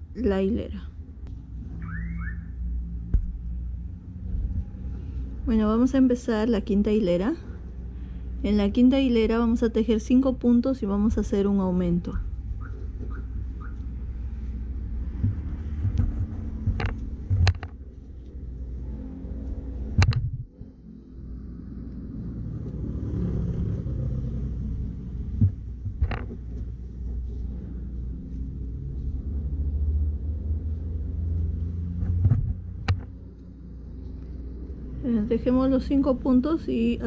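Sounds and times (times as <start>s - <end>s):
steady low rumble: 0.0s - 37.0s
sharp clicks or knocks: 15.2s - 17.8s, 20.0s - 20.5s, 25.4s - 26.4s, 32.0s - 33.1s.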